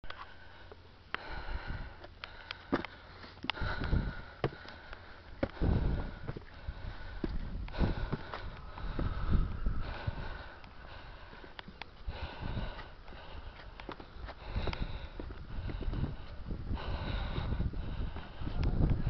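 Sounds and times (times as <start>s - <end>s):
person breathing heavily: 0.0s - 19.0s.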